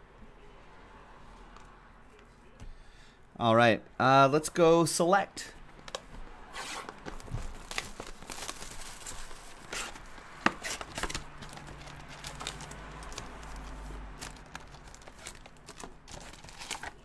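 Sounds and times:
cardboard box and foil handling: 0:06.6 - 0:17.0.

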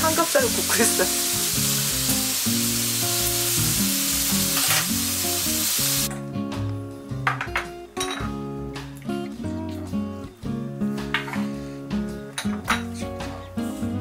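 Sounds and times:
pork sizzling in a frying pan: 0:00.0 - 0:06.1
guitar background music: 0:00.0 - 0:14.0.

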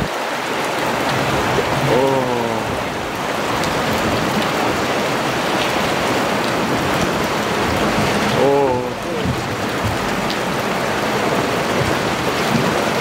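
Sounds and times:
floodwater churning around boat: 0:00.0 - 0:13.0
rain: 0:00.0 - 0:13.0.

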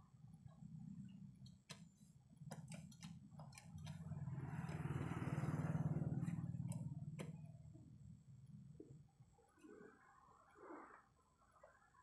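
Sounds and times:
sharp clicks: 0:01.4 - 0:04.9
low engine hum: 0:03.8 - 0:08.9
vehicle engine passing by: 0:04.0 - 0:07.2.

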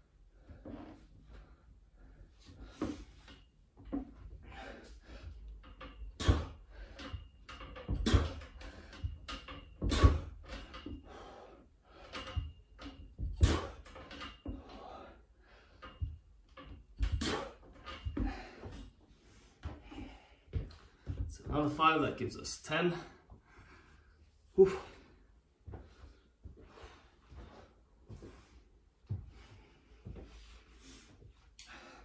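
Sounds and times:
pull-up station knocking and squeaking: 0:02.5 - 0:21.8
heavy breathing: 0:04.3 - 0:05.5, 0:10.9 - 0:12.6, 0:14.5 - 0:16.2, 0:17.2 - 0:21.3, 0:22.8 - 0:32.0.

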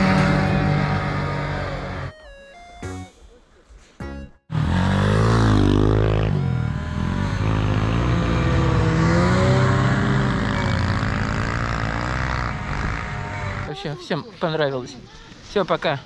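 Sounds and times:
dirt bike engine revving: 0:00.0 - 0:02.1, 0:04.5 - 0:13.7
snowmobile engine revving: 0:00.0 - 0:02.1, 0:04.5 - 0:13.8.

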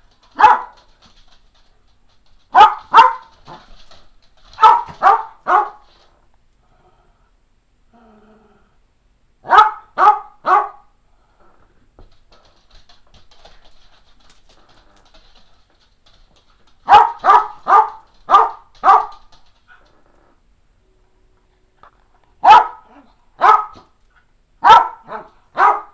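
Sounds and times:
dog barking: 0:00.3 - 0:00.8, 0:02.5 - 0:03.3, 0:04.6 - 0:05.8, 0:09.4 - 0:10.9, 0:16.8 - 0:19.2, 0:22.4 - 0:23.9, 0:24.6 - 0:25.9.

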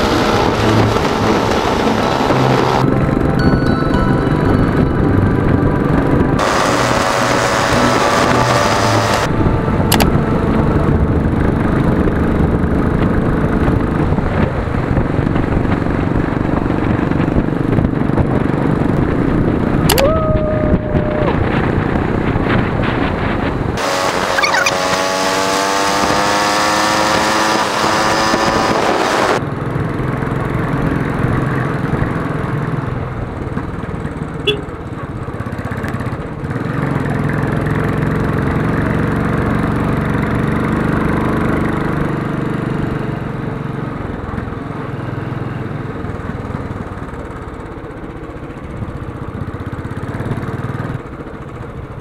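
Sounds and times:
motorcycle engine running: 0:00.0 - 0:19.9, 0:20.8 - 0:52.0
short horn beep: 0:34.4 - 0:34.7.

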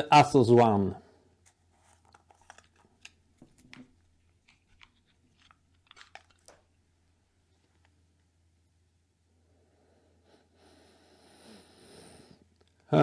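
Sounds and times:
faint crinkles and clicks: 0:01.4 - 0:06.8, 0:07.5 - 0:08.3.

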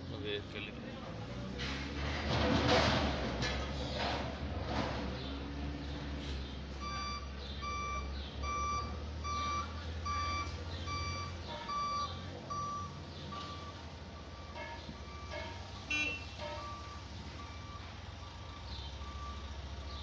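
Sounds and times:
engine droning: 0:00.0 - 0:20.0
reversing alarm beeping: 0:06.8 - 0:20.0.

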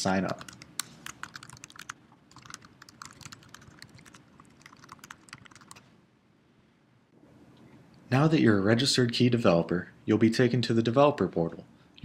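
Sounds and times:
keyboard typing clicks: 0:00.3 - 0:05.8.

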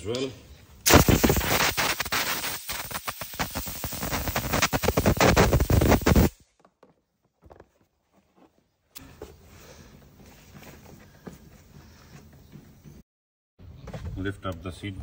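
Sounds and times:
compressed air blow gun hissing: 0:00.9 - 0:06.4.

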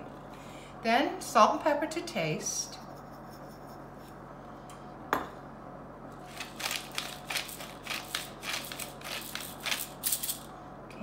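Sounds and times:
pepper mill grinding: 0:06.3 - 0:10.5.

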